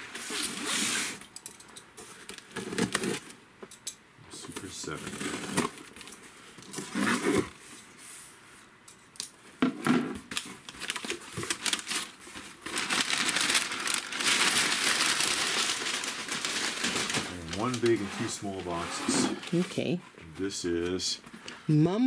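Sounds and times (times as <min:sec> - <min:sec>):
tape tearing: 0:00.1 - 0:01.3, 0:02.3 - 0:03.3, 0:04.9 - 0:07.5, 0:10.3 - 0:19.6
packing paper crumpling: 0:10.3 - 0:19.6.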